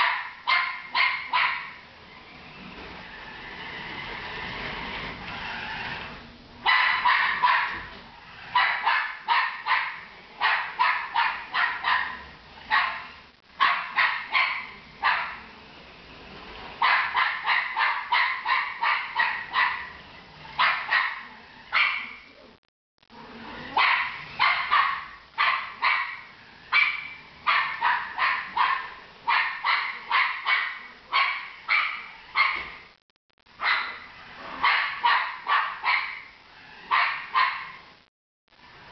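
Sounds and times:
dog barking: 0:00.0 - 0:01.8, 0:06.6 - 0:07.9, 0:08.5 - 0:15.4, 0:16.8 - 0:20.0, 0:20.6 - 0:22.3, 0:23.7 - 0:32.8, 0:33.6 - 0:37.8.

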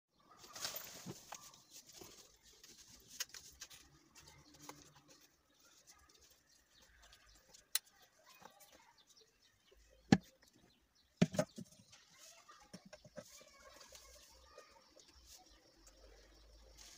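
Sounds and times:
metal and plastic knocks: 0:11.2 - 0:11.8.

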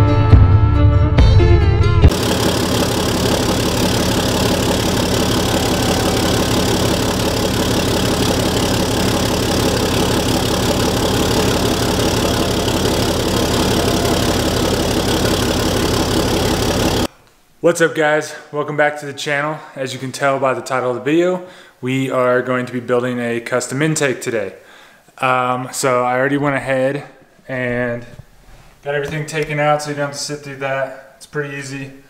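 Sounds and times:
engine idling: 0:02.1 - 0:17.1.

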